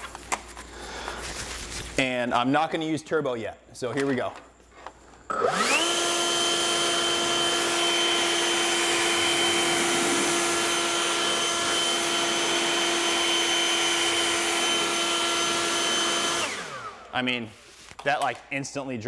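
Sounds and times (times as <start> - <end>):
leaf blower whine and air rush: 5.3 - 17.1.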